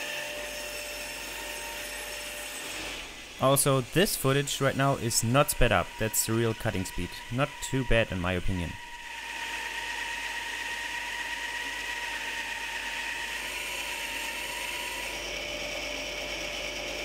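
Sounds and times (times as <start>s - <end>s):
bandsaw cutting through log: 0.0s - 17.0s.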